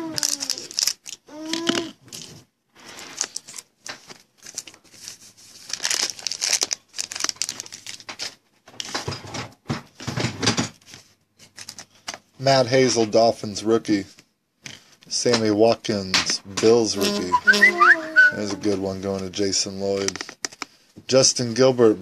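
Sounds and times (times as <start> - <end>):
foil wrapper tearing and crinkling: 0.1 - 1.7, 2.9 - 8.4.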